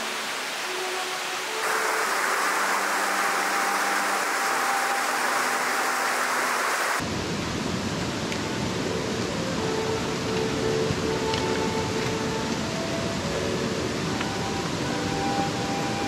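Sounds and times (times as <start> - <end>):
creek flowing over rocks: 0.0 - 7.0.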